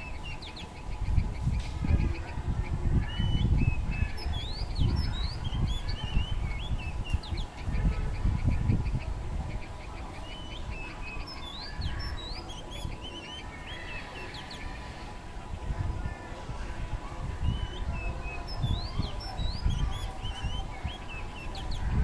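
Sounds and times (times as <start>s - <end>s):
bird calling with whistled notes: 3.0s - 9.0s, 9.7s - 14.8s, 17.4s - 22.0s.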